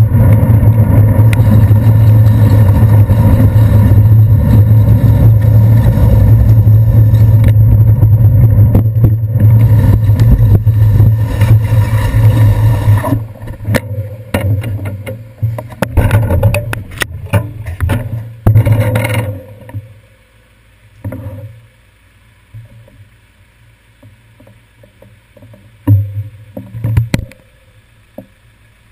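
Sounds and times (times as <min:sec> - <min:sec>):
bike knocks and rattles: 0:00.0 - 0:19.9, 0:24.4 - 0:27.5
wind rumble: 0:00.0 - 0:19.9
thumps: 0:00.0 - 0:20.0, 0:24.0 - 0:27.5
wet road noise: 0:00.0 - 0:28.9.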